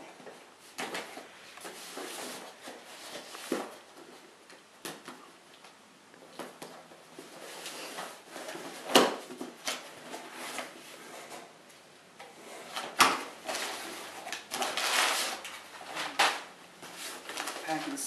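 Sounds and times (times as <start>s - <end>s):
packing paper rustling: 12.6s - 18.0s.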